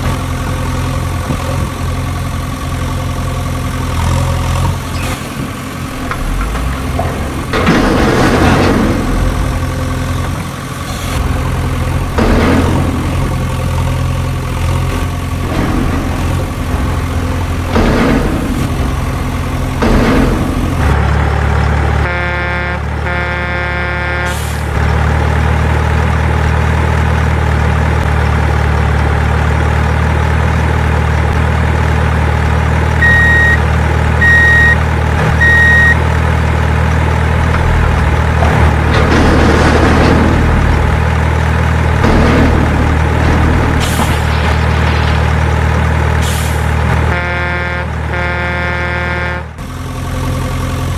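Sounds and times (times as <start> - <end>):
diesel truck engine running: 0.0 - 50.9
horn blasts: 22.0 - 24.8, 47.0 - 49.6
reversing beeps: 33.0 - 33.6, 34.2 - 34.8, 35.4 - 36.0.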